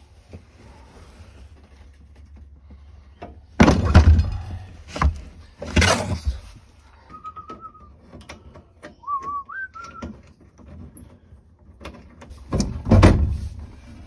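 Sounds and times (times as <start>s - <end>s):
person whistling: 7.0s - 7.9s, 8.9s - 10.1s.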